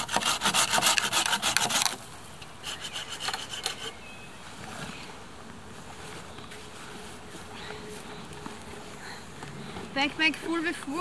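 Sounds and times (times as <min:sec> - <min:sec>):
hand saw cutting branch: 0:00.0 - 0:02.0, 0:02.6 - 0:04.0.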